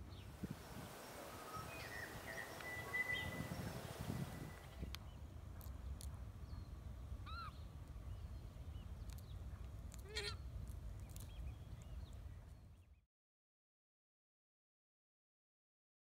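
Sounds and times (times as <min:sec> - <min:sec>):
steady low rumble: 0:00.0 - 0:12.6
bird squawking: 0:01.7 - 0:03.7.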